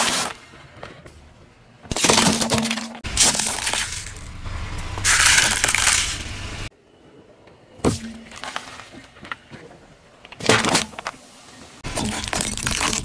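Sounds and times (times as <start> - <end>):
tyre crushing water beads: 1.9 - 4.3, 5.0 - 6.3, 11.8 - 13.0
drink carton bursting: 11.8 - 13.0.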